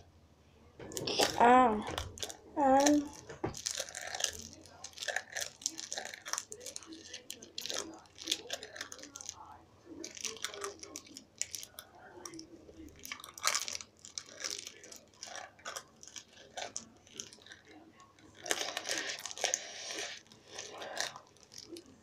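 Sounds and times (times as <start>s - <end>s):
packing tape crinkling: 2.0s - 9.4s.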